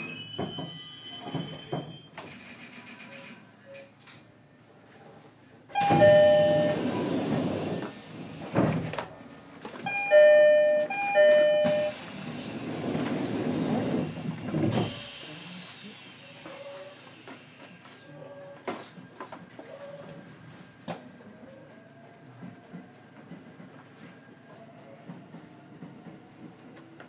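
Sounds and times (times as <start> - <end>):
two-note door chime: 5.8 - 6.8, 9.9 - 12.0
train doors sliding: 5.8 - 17.8.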